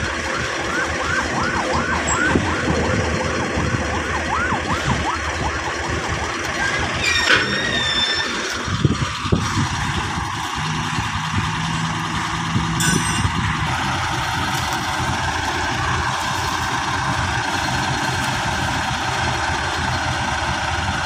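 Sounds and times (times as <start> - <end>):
warbling warning alarm: 0.0 - 9.0, 12.8 - 13.6
heavy engines running: 0.0 - 21.0
brief high squeal: 6.6 - 8.5.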